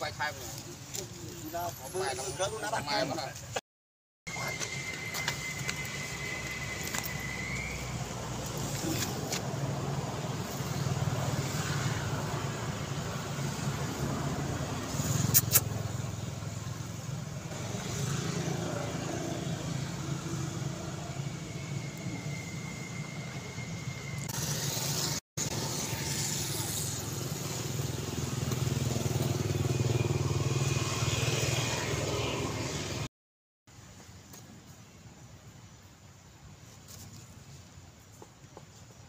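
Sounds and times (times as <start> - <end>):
vehicle engine humming: 4.3 - 33.1.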